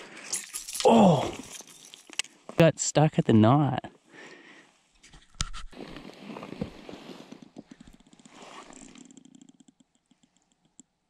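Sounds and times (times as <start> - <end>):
fleece glove rustling: 5.0 - 9.0
small clicks of fishing lure: 7.8 - 11.0.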